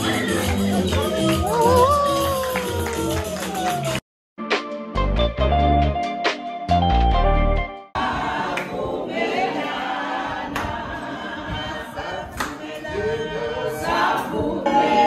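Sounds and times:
group singing unaccompanied: 0:00.0 - 0:01.3, 0:08.0 - 0:15.0
background music: 0:00.0 - 0:08.3.

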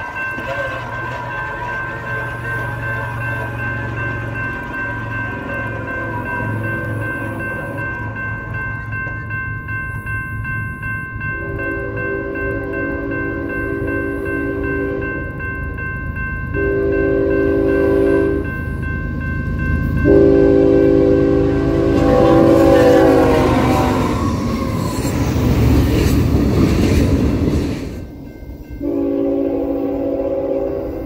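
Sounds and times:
locomotive horn blasts: 0:00.0 - 0:03.3, 0:11.4 - 0:15.2, 0:16.6 - 0:18.5, 0:20.0 - 0:24.2, 0:28.8 - 0:31.0
train rumbling on rails: 0:00.0 - 0:31.0.

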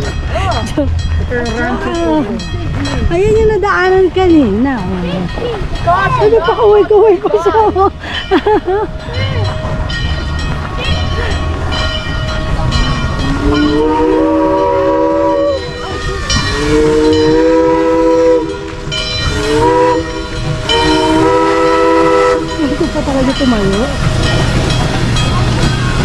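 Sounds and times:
steam locomotive whistle blasts: 0:13.2 - 0:22.7.

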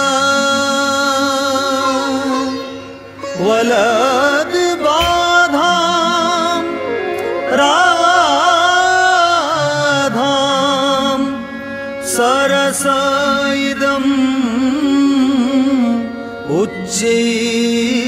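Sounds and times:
slow ornamented melody: 0:00.0 - 0:18.0
bright metallic strikes: 0:04.9 - 0:05.7.

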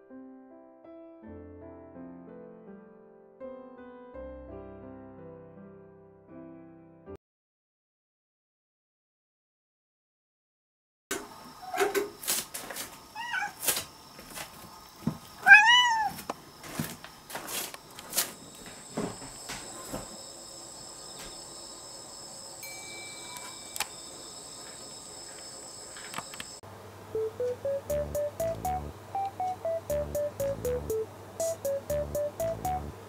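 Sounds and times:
cat meowing: 0:13.2 - 0:13.6, 0:15.4 - 0:16.2.

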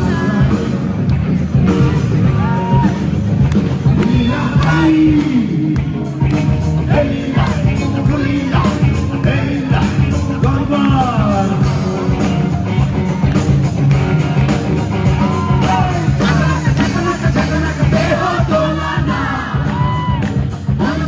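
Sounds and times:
male singer: 0:00.0 - 0:01.0, 0:03.8 - 0:12.5, 0:15.2 - 0:21.0
drum beat: 0:00.0 - 0:21.0
electric guitar: 0:00.0 - 0:21.0
heavy bass: 0:00.0 - 0:21.0.

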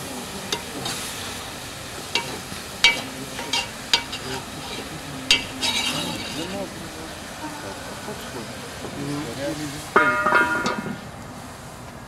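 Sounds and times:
carrots sizzling in oil: 0:00.0 - 0:11.8
metal skimmer clacking against pot: 0:02.1 - 0:06.4.

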